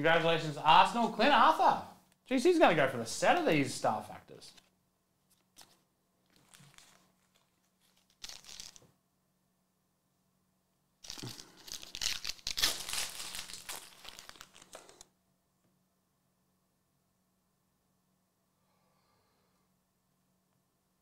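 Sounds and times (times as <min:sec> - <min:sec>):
foil wrapper tearing and crinkling: 0:05.3 - 0:08.8, 0:11.0 - 0:15.0.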